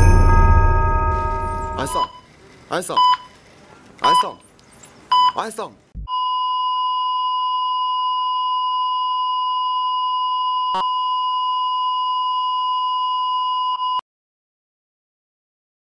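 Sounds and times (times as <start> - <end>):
steady electronic tone: 0.0 - 2.1.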